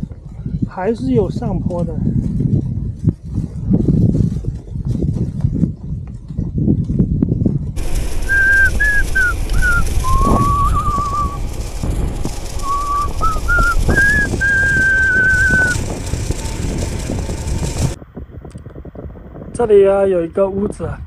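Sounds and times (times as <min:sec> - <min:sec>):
wind rumble on microphone: 0:00.0 - 0:21.0
person whistling a tune: 0:08.3 - 0:11.4.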